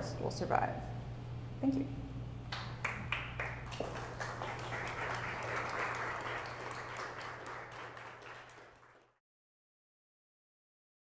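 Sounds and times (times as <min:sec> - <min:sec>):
steady low hum: 0:00.0 - 0:07.9
audience applauding: 0:02.5 - 0:09.2.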